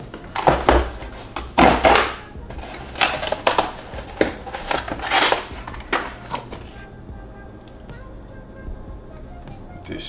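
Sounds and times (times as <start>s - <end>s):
cardboard and paper rustling: 0.0s - 6.8s
cardboard box tearing: 0.4s - 6.5s.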